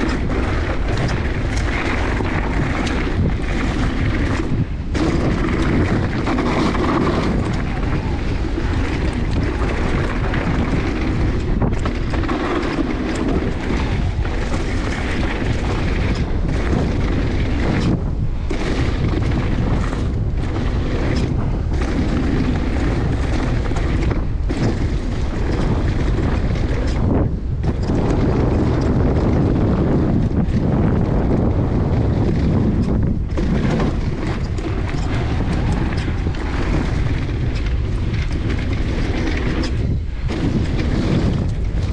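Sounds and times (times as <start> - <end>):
bike tyres on dirt trail: 0.0 - 41.9
wind buffeting microphone: 0.0 - 41.9.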